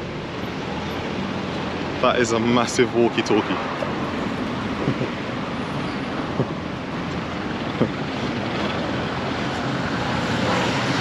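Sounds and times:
city street traffic: 0.0s - 11.0s
wind on microphone: 3.8s - 11.0s.

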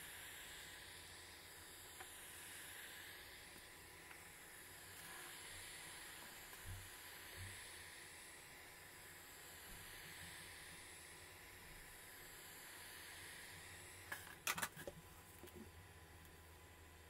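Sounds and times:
sharp clicks and knocks: 14.1s - 15.6s.

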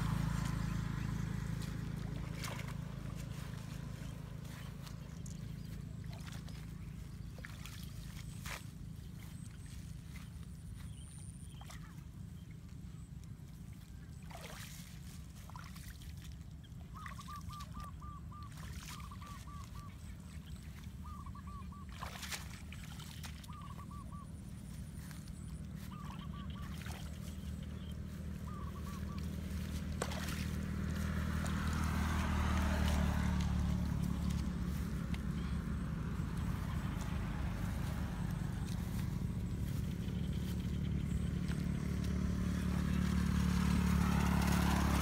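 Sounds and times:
low engine hum: 0.0s - 45.0s
bird calling in clipped notes: 17.0s - 24.3s, 25.4s - 30.4s.

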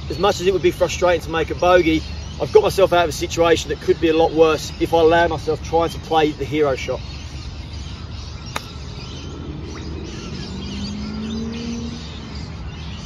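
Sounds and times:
golf club striking ball: 8.4s - 8.9s.

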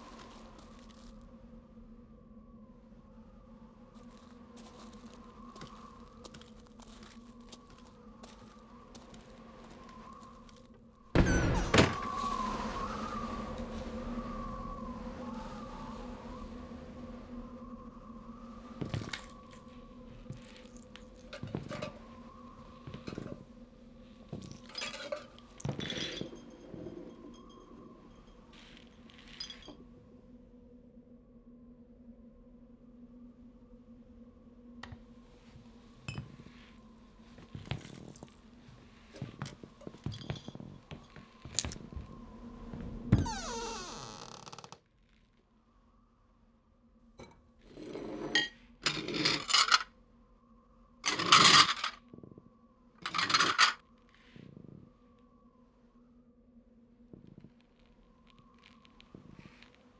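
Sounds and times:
faint steady hum: 0.0s - 59.9s
glass pieces tinkling: 28.7s - 29.8s.

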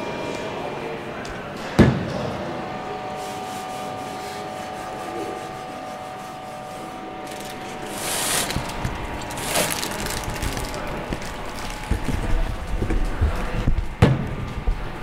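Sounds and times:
cloth rubbing on steel drum: 3.1s - 10.8s.

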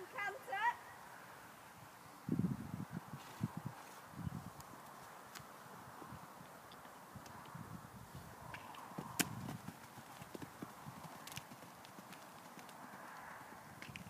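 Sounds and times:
pony hoofbeats: 8.7s - 14.0s.

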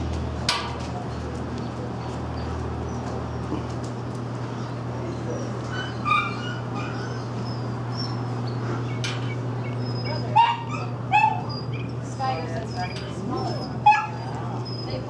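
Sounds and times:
steady low hum: 0.0s - 15.0s
dogs barking and yipping: 4.5s - 15.0s.

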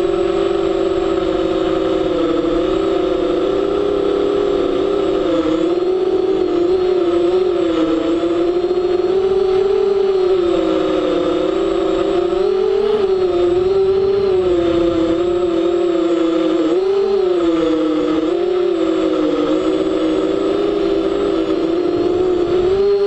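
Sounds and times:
model aircraft motor buzzing: 0.0s - 23.0s.

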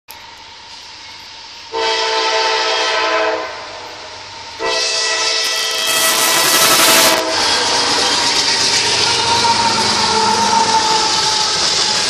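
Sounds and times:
locomotive air horn blasts: 1.8s - 3.7s, 4.6s - 7.5s.

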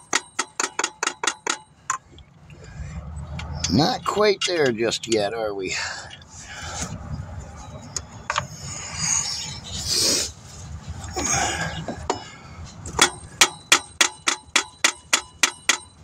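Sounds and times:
metal taps on metal housing: 0.0s - 2.2s, 12.9s - 16.0s
soft rustling and scraping: 6.2s - 11.1s.

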